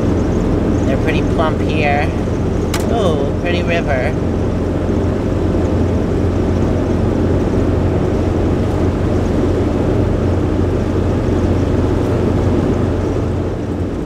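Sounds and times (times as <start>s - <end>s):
engine and road noise drone: 0.0s - 14.0s.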